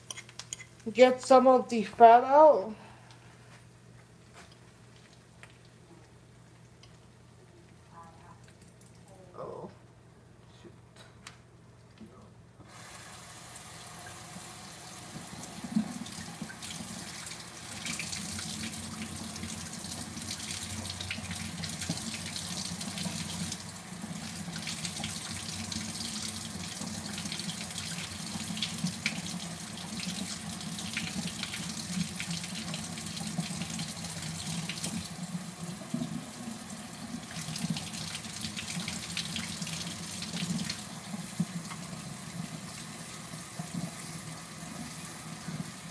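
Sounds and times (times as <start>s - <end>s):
faucet water running into sink: 12.7s - 45.9s.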